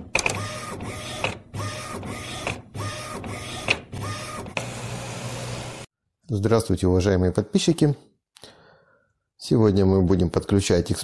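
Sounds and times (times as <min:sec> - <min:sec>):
label printer motor whining: 0:00.0 - 0:05.9.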